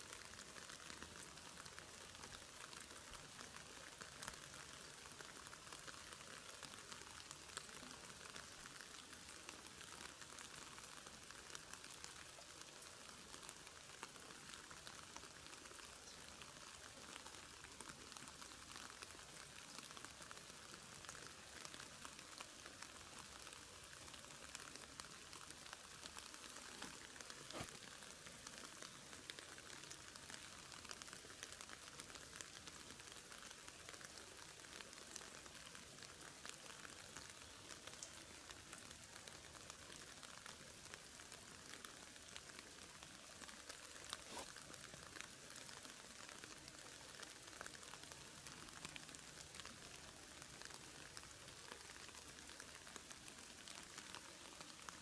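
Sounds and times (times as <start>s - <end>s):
water drops ticking on leaves: 0.1s - 55.0s
steady hiss: 43.4s - 44.8s.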